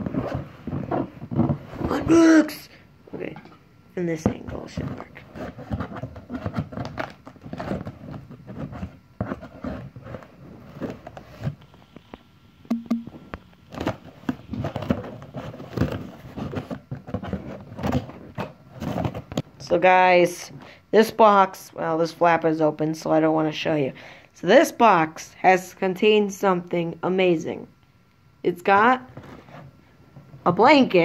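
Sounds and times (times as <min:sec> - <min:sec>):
cardboard rustling: 0:04.2 - 0:12.0, 0:13.7 - 0:19.4.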